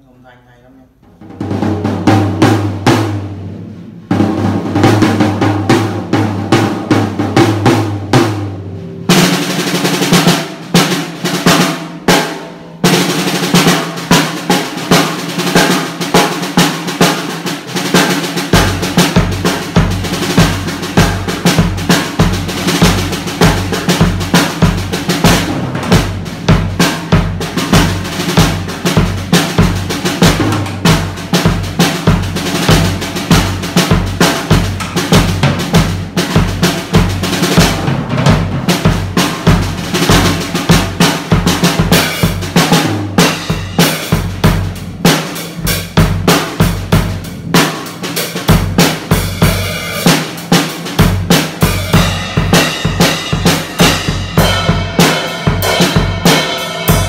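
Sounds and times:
drum groove on snare and cymbals: 0:01.0 - 0:57.0
tom drum strokes: 0:01.0 - 0:57.0
bass drum beat: 0:18.0 - 0:47.8, 0:48.5 - 0:50.1, 0:51.0 - 0:57.0.

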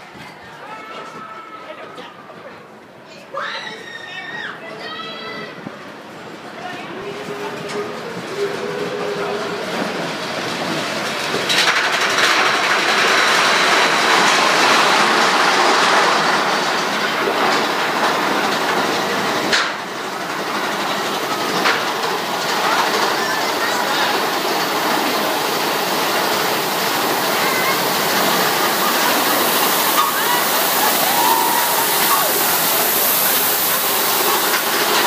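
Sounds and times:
coaster wheels clattering: 0:00.0 - 0:35.0.

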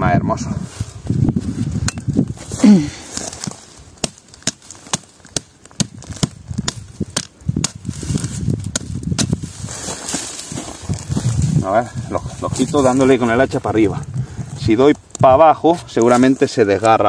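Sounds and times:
adze striking wood: 0:04.0 - 0:07.8.

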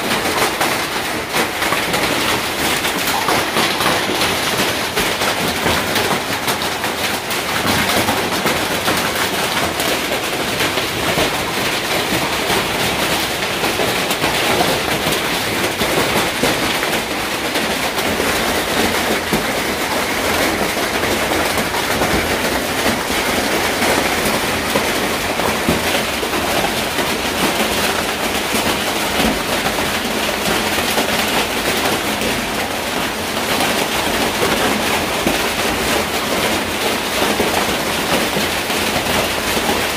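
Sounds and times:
hail pelting tin roofs: 0:00.0 - 0:39.9.

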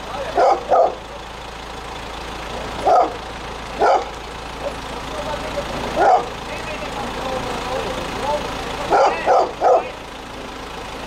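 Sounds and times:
backhoe engine idling: 0:00.0 - 0:11.0
dog barking: 0:00.4 - 0:01.0, 0:02.8 - 0:03.2, 0:03.8 - 0:04.1, 0:06.0 - 0:06.3, 0:08.9 - 0:10.0.

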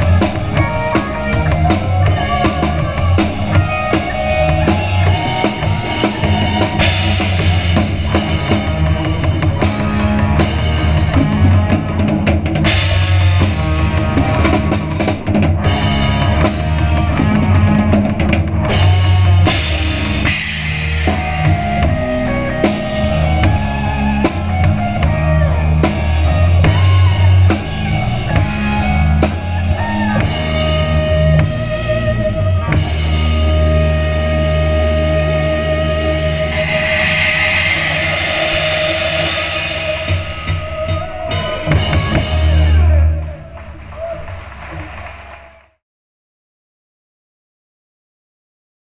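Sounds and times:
cymbals: 0:00.0 - 0:12.0, 0:18.7 - 0:32.2, 0:32.8 - 0:43.0
rock band playing: 0:00.0 - 0:45.2
electric guitar: 0:00.0 - 0:45.3
bass guitar: 0:00.0 - 0:45.8.

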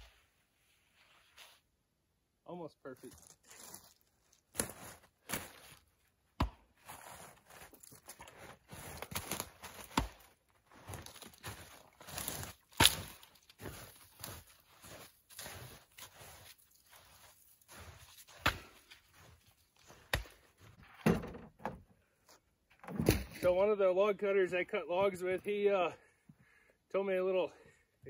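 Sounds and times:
footsteps crunching through snow: 0:00.0 - 0:01.7, 0:03.0 - 0:06.1, 0:06.7 - 0:20.8
brush rustling: 0:06.9 - 0:20.8
twigs cracking: 0:07.5 - 0:20.4.

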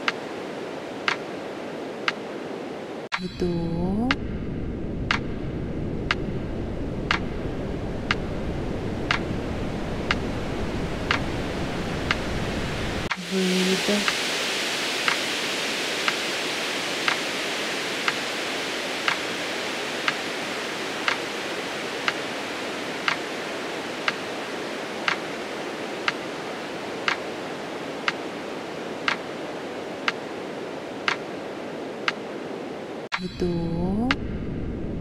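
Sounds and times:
steady hiss: 0:06.1 - 0:33.3.

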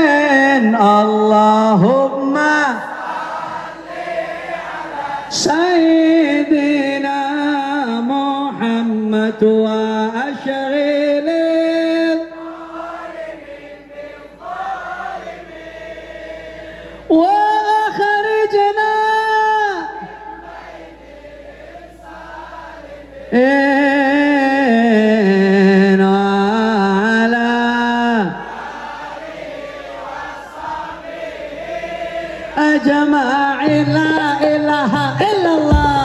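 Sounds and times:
man chanting over loudspeaker: 0:00.0 - 0:03.0, 0:04.9 - 0:14.4, 0:22.9 - 0:28.5
many voices singing along: 0:00.0 - 0:36.0.

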